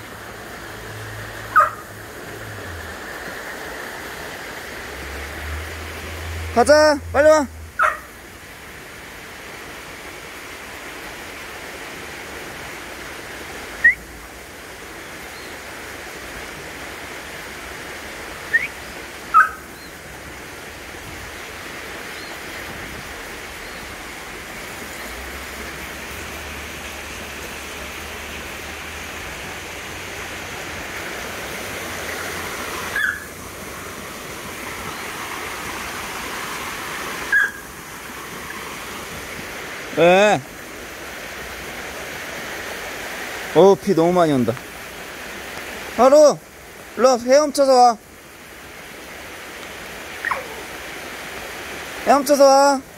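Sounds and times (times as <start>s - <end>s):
stream and waterfall rushing: 0.0s - 52.9s
dog whining squeakily: 33.0s - 33.3s, 50.2s - 50.6s.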